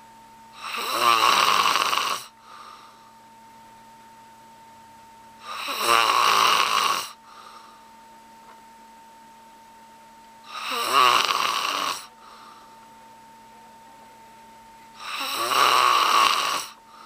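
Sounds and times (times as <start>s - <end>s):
man snoring loudly: 0.6s - 2.3s, 5.4s - 7.2s, 10.5s - 12.1s, 15.0s - 16.8s
soft breath: 2.3s - 3.2s, 7.2s - 8.0s, 12.0s - 12.9s, 16.7s - 17.0s.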